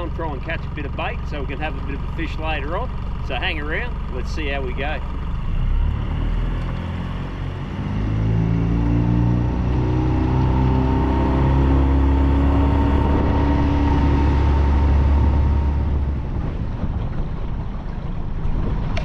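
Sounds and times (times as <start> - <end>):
outboard motor running: 0.0 - 19.0
water noise: 0.0 - 19.0
wind on microphone: 7.2 - 19.0.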